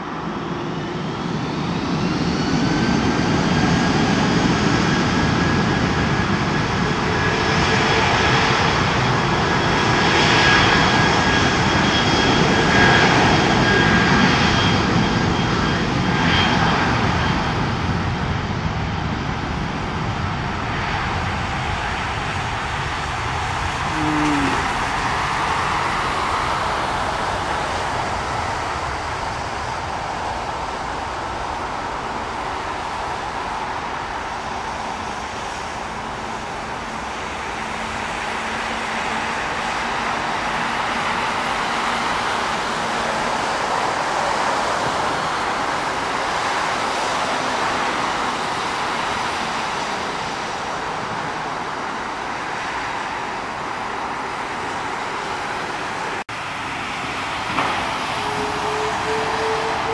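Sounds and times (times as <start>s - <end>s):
distant jet engines roaring: 0.0s - 59.9s
brief falling tone: 23.9s - 24.7s, 57.8s - 59.9s.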